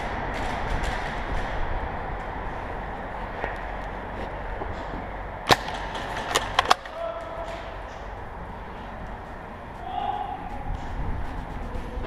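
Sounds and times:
airsoft rifle shot: 5.5 - 7.0.

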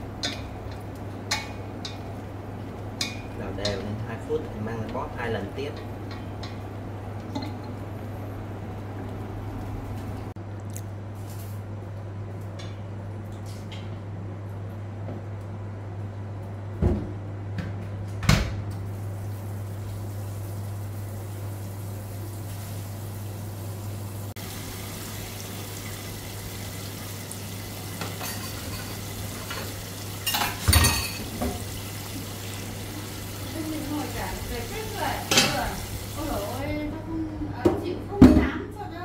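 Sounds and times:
metal clanks in sink: 28.0 - 31.6.

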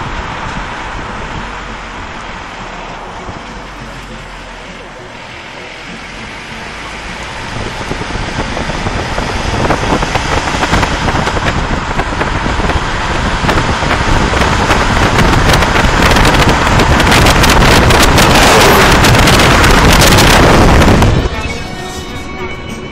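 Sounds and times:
car road rumble: 0.0 - 22.2
wind buffeting microphone: 6.2 - 21.3.

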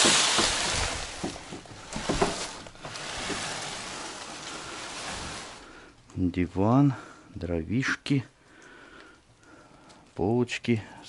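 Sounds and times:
knocks and clatter in wooden shed: 0.0 - 5.8.

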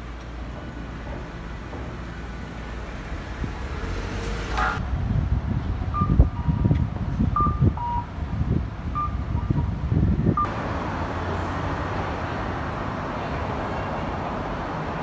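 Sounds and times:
street traffic: 0.0 - 15.0
wind buffeting microphone: 3.0 - 10.5.

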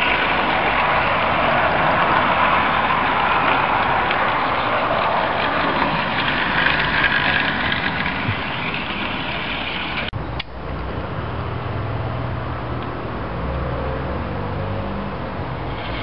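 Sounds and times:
model train whirring on track: 0.0 - 10.1, 15.4 - 16.0.

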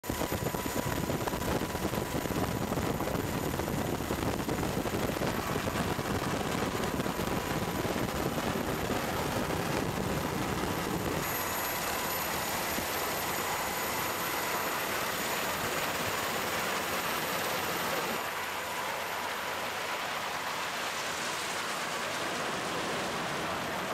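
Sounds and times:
aircraft rumble: 0.1 - 16.8.

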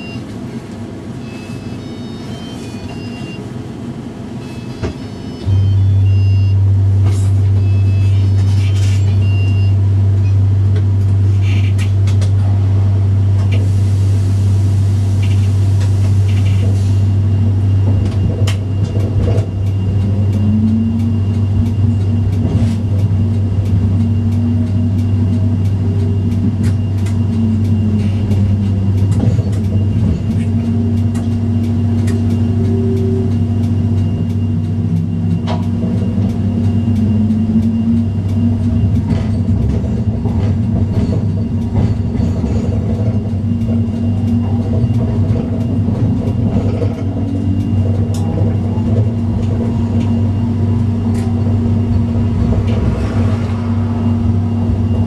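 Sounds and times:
tram low hum: 0.0 - 55.0
short high beeps: 1.2 - 3.4, 4.4 - 6.6.

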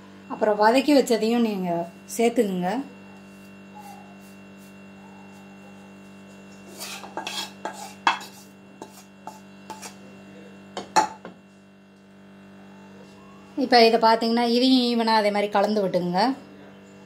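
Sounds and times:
low electrical hum: 0.0 - 17.0
spatula scraping a pan: 6.2 - 10.1.

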